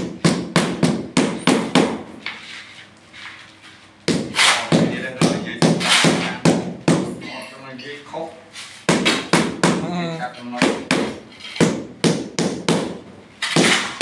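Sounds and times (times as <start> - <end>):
shovel scraping mix: 4.3 - 4.7.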